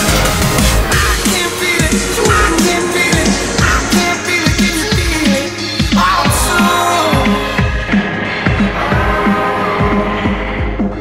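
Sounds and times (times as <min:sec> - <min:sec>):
deep falling bass notes: 0:00.0 - 0:06.6
music with heavy beat: 0:00.0 - 0:11.0.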